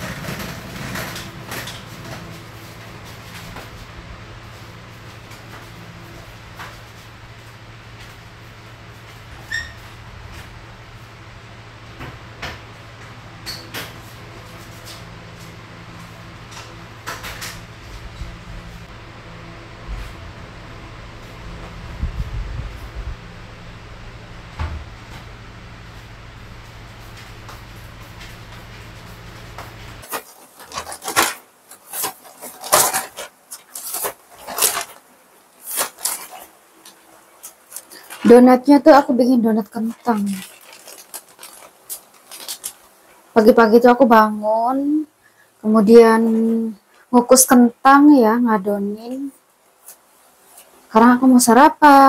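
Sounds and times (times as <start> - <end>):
objects rustling and scraping: 0.0 - 11.1, 13.4 - 18.9, 25.0 - 43.4, 49.1 - 50.9
low hum: 0.0 - 30.0.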